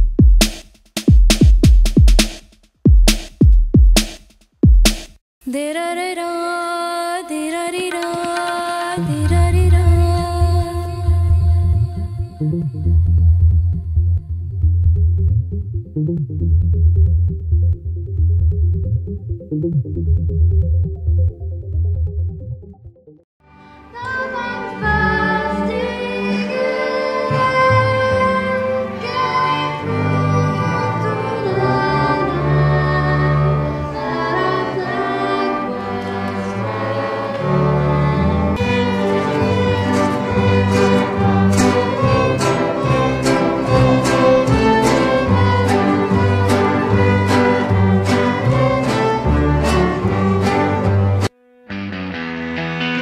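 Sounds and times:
string ensemble playing: 23.4 - 53.0.

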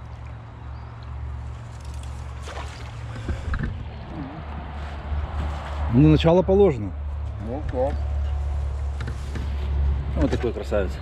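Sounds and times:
water splashing and sloshing: 0.0 - 5.9.

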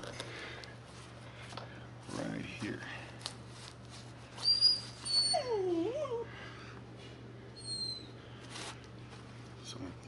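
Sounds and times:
dog whining and yelping: 4.4 - 6.3, 7.6 - 8.2.

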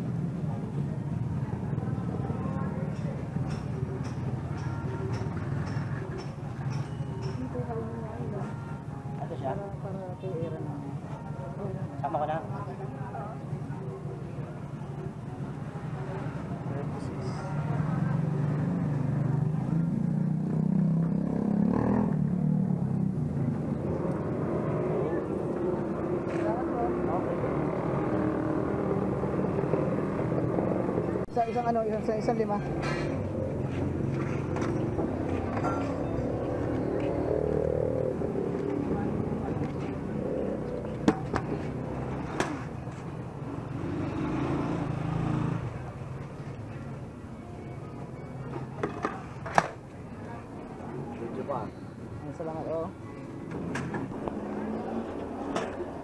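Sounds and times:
street traffic: 0.0 - 56.0
vehicle engine humming: 16.0 - 56.0.

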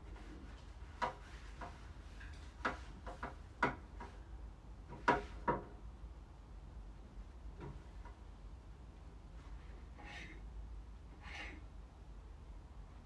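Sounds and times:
ceiling fan blades knocking: 0.0 - 6.0.

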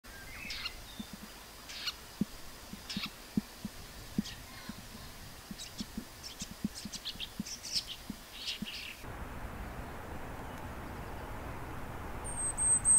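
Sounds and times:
bird calling sharp high notes: 12.2 - 12.9.

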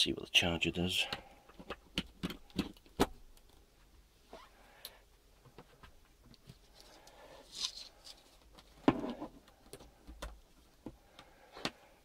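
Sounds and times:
plastic charger clicks and knocks: 1.6 - 3.2.

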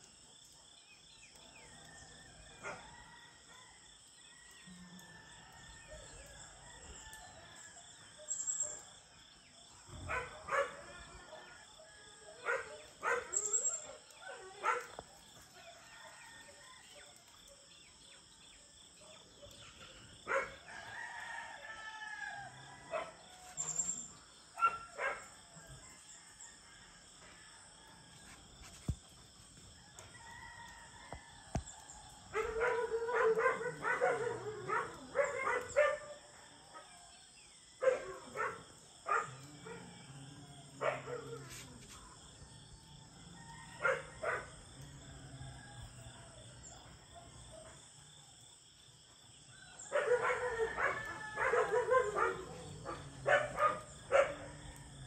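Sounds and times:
rooster crowing: 1.8 - 7.7, 20.6 - 23.6, 29.8 - 35.6, 42.9 - 46.8, 49.6 - 55.0
dogs barking: 9.8 - 11.6, 12.4 - 15.2, 19.1 - 20.6, 22.8 - 23.2, 24.5 - 25.5, 32.3 - 37.0, 37.8 - 41.6, 43.7 - 44.7, 49.9 - 54.8.

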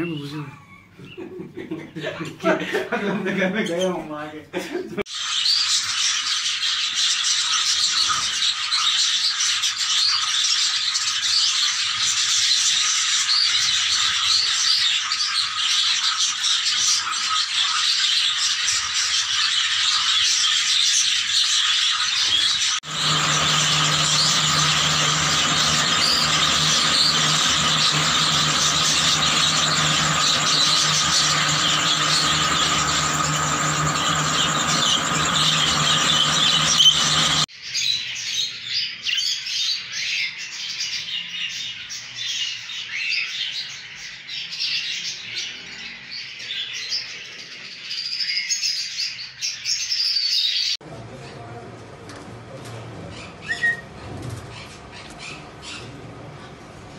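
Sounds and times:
steady low hum: 22.8 - 37.5.

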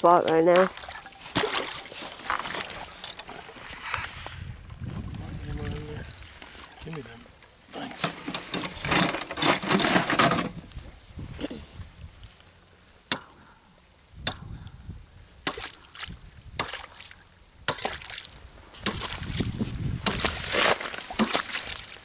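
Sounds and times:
water sloshing: 0.0 - 10.5, 15.5 - 22.0
ice cracking: 0.6 - 4.0, 20.0 - 22.0.

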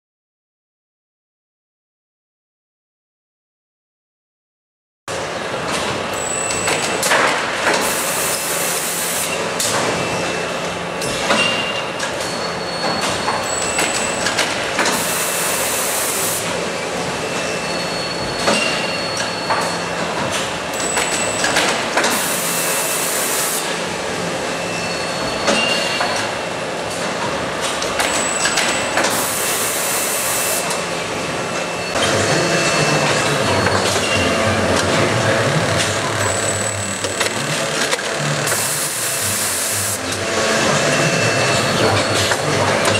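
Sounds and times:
machine clatter with knocks: 5.6 - 8.0, 9.3 - 15.1, 18.2 - 22.3, 25.2 - 29.3, 33.1 - 38.7, 41.8 - 42.9
sharp hiss of press: 22.1 - 23.7.

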